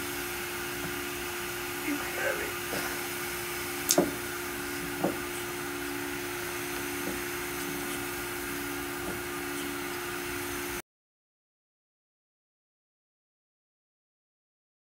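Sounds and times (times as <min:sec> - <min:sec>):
grinding machine humming: 0:00.0 - 0:10.8.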